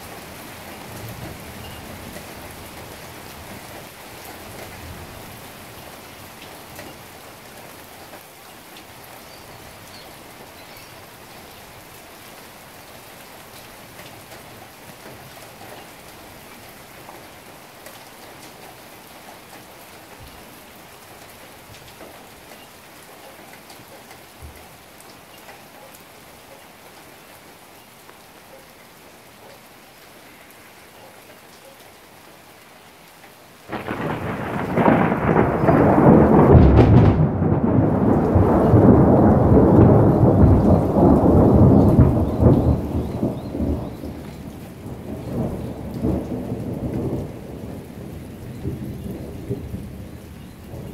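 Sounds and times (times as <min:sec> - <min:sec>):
rain falling: 0:00.0 - 0:50.9
raindrops ticking: 0:13.4 - 0:50.9
thunder clap: 0:33.7 - 0:47.8.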